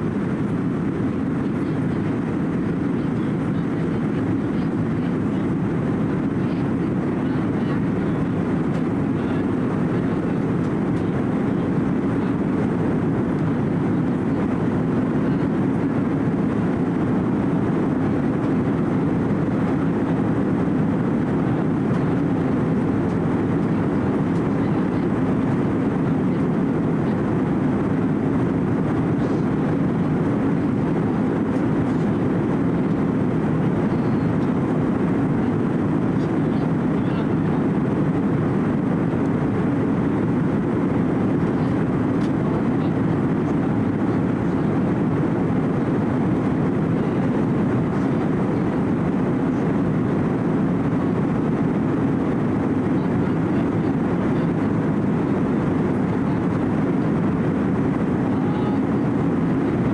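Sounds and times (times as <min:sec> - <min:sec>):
jet engines roaring: 0:00.0 - 0:59.9.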